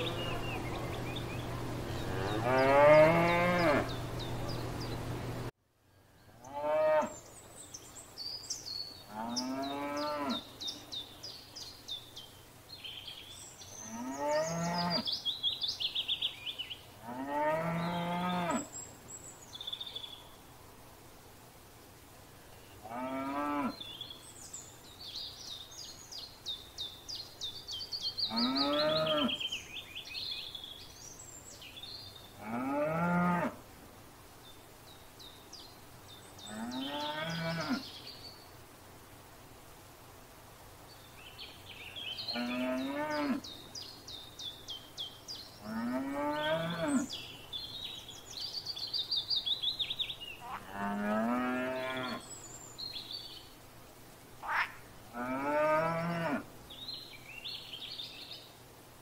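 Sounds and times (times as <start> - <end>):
songbirds singing: 0.0 - 20.6, 22.3 - 39.2, 40.3 - 58.9
cows mooing: 1.9 - 4.1, 32.4 - 33.6, 50.5 - 52.2, 54.5 - 56.4.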